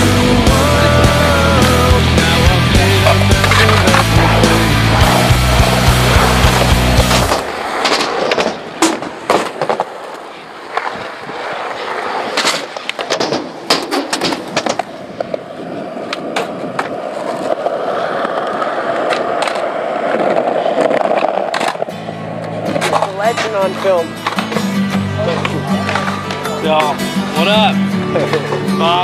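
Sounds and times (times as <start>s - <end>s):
skateboard wheels rolling on concrete: 0.0s - 29.0s
skateboard clacking on ground: 3.0s - 27.0s.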